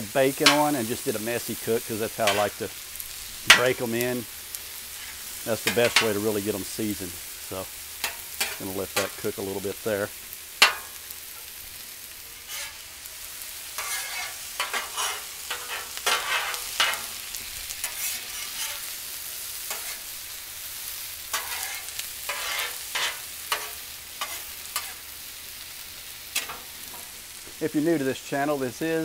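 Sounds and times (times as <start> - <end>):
vegetables sizzling on griddle: 0.0 - 29.0
metal spatula scraping griddle: 0.3 - 2.8, 4.7 - 6.6, 8.0 - 9.6, 10.6 - 11.5, 12.1 - 20.2, 21.1 - 25.2, 26.1 - 27.4.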